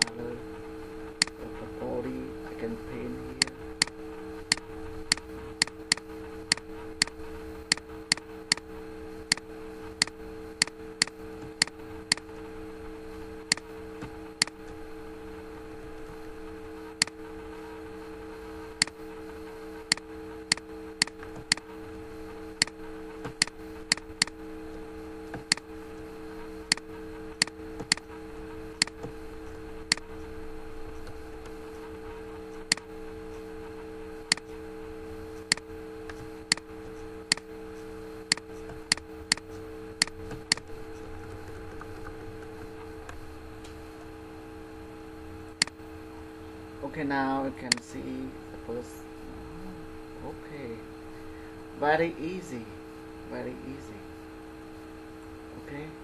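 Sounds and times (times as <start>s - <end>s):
steady low hum: 0.0s - 56.0s
computer mouse clicking: 3.4s - 8.7s, 9.3s - 12.3s, 13.5s - 13.7s, 19.9s - 21.7s, 22.6s - 24.4s, 25.3s - 25.7s, 26.7s - 28.1s, 29.9s - 30.1s, 32.6s - 32.9s, 34.3s - 34.5s, 35.4s - 36.7s, 37.3s - 37.5s, 38.3s - 43.2s.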